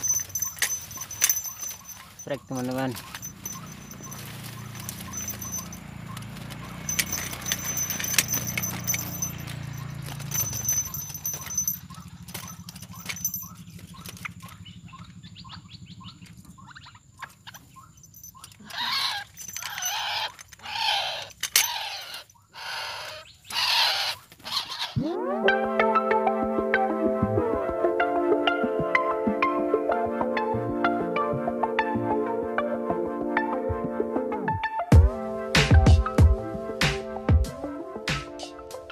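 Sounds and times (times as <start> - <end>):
wire cage rattling: 0.0 - 15.3, 16.0 - 25.0
grass and leaves rustling: 0.0 - 25.0.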